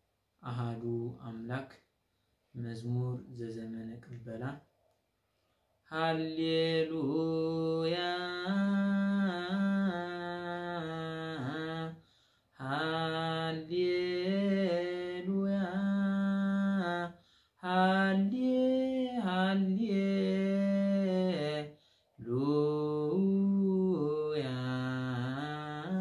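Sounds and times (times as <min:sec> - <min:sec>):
man singing a hymn unaccompanied: 0:05.9 - 0:12.0, 0:12.6 - 0:26.0.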